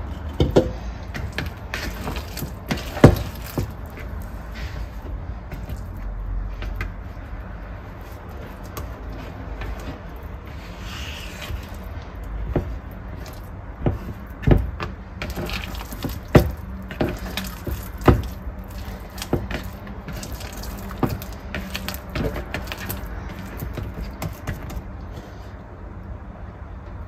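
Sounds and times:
dough slapping in bowl: 0.5 - 4.4, 11.3 - 24.8.

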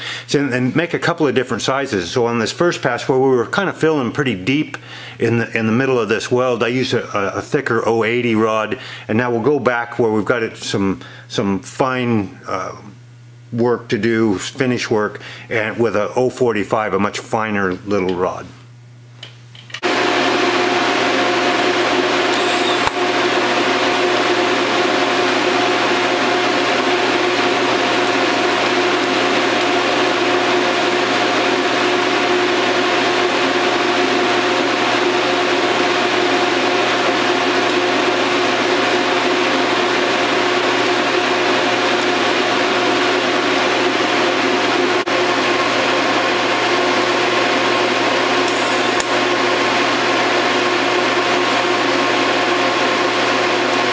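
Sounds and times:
welding rig hum: 19.2 - 53.9
welding rig hissing: 22.3 - 31.9, 48.4 - 50.1.

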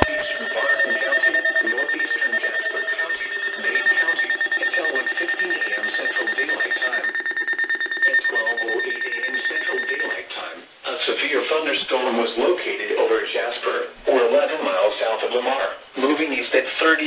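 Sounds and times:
rapid alarm beeping: 0.0 - 10.5
steady high tone: 0.0 - 10.6.

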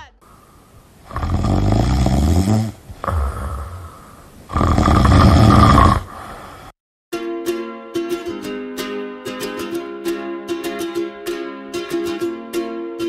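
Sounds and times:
person snoring loudly: 1.0 - 6.8
plucked string music: 7.1 - 13.0.

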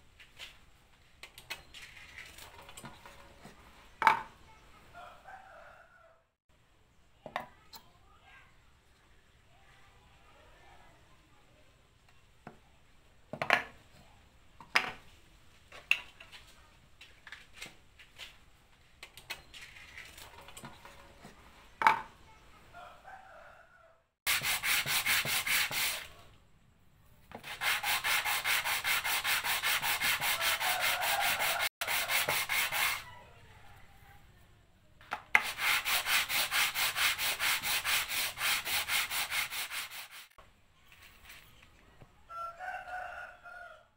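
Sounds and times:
sandpaper rubbing on wood: 24.3 - 26.2, 27.4 - 33.1, 35.4 - 40.4.

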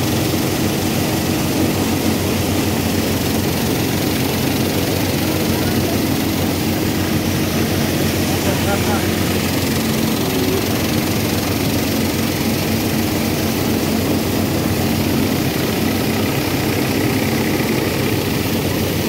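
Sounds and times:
threshing machine drone: 0.0 - 19.0.

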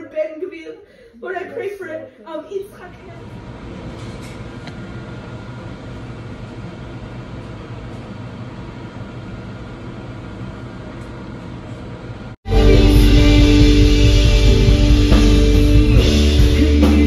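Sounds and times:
machinery hum and hiss: 2.7 - 12.4.

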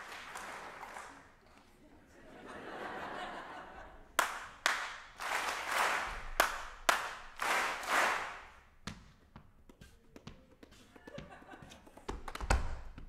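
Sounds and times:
audience clapping: 0.0 - 1.7, 4.1 - 8.7
single person clapping: 4.2 - 8.5.

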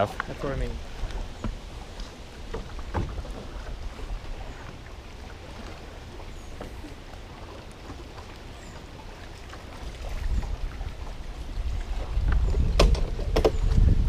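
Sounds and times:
water rumbling against boat hull: 0.0 - 14.0
wind on microphone: 9.8 - 14.0.

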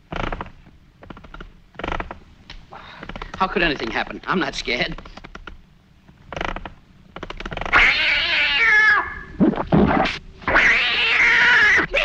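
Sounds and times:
cat yowling: 7.7 - 12.0.

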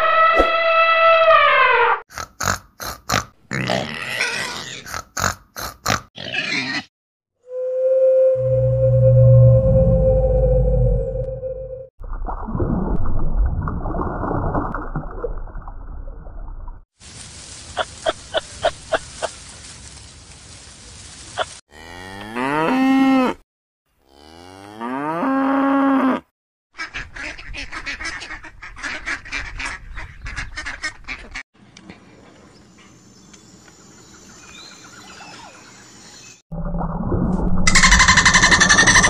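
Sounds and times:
cow mooing: 21.7 - 23.4, 24.0 - 26.2.

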